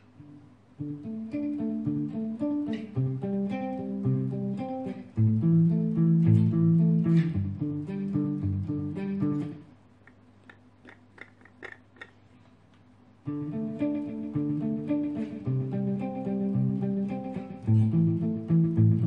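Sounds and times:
clean guitar notes with echoes: 0:00.2 - 0:09.7, 0:13.3 - 0:19.0.

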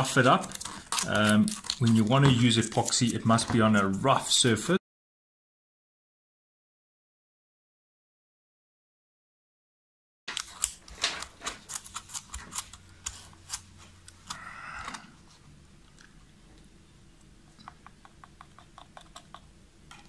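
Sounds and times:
plastic clicks and scraping: 0:10.3 - 0:14.4.

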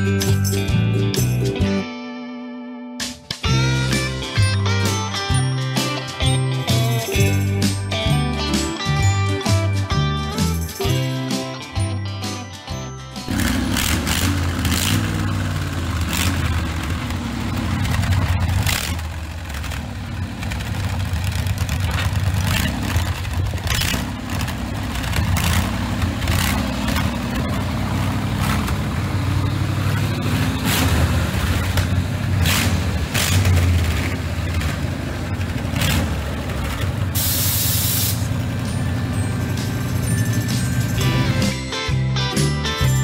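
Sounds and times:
unmuffled engine revving: 0:13.3 - 0:41.5.

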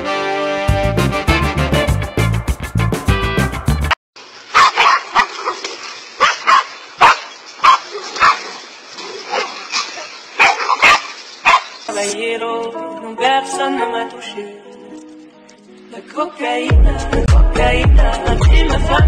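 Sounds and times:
dogs barking: 0:04.5 - 0:11.9.

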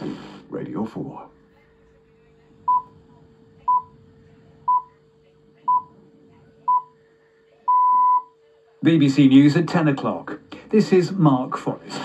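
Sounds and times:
faint steady hum: 0:00.0 - 0:12.0
time signal beeps on radio: 0:04.7 - 0:04.9, 0:05.7 - 0:05.9, 0:06.7 - 0:07.0, 0:07.7 - 0:08.4.

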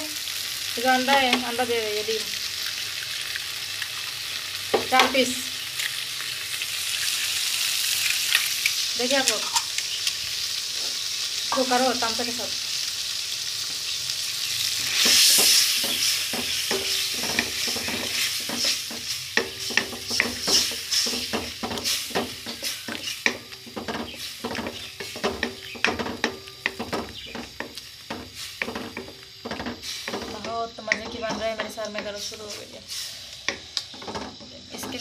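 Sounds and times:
eggs sizzling in a wok: 0:00.0 - 0:35.0
metal spatula scraping a pan: 0:14.9 - 0:33.1.

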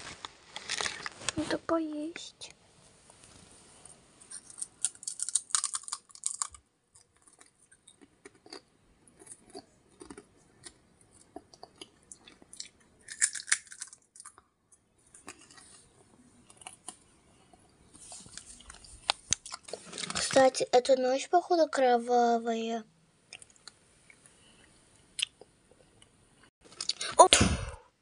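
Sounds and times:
child chewing crunchy snack: 0:04.3 - 0:20.4.

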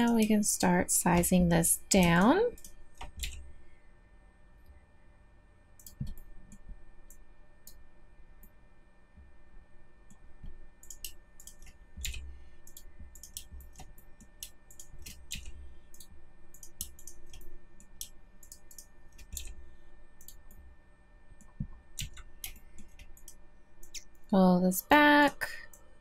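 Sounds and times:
faint electrical hum: 0:00.0 - 0:26.0
mouse and keyboard clicking: 0:10.8 - 0:19.6.

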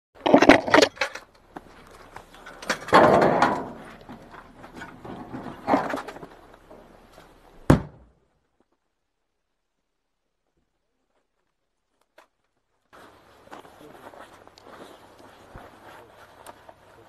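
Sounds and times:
clothing and gear rustling: 0:12.7 - 0:17.0.

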